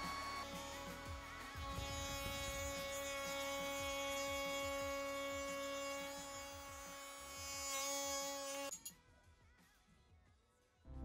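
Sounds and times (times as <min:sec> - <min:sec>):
trim router high whine: 0:00.0 - 0:08.7.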